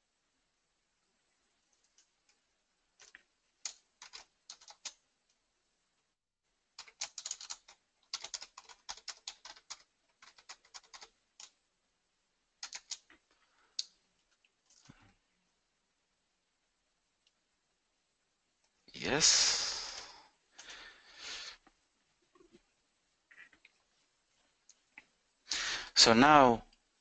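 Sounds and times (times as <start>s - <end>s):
keyboard keystrokes: 3.0s - 5.0s, 6.8s - 11.5s, 12.6s - 13.1s.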